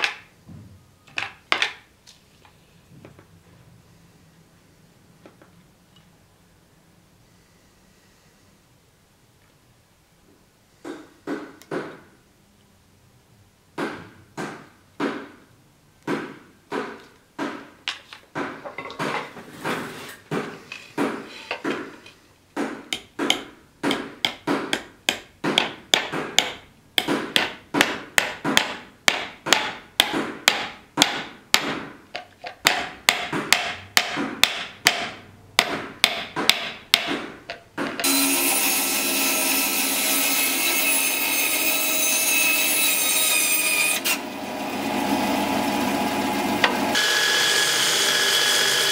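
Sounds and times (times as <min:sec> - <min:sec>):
hammer tapping metal pins: 0:22.6 - 0:38.1.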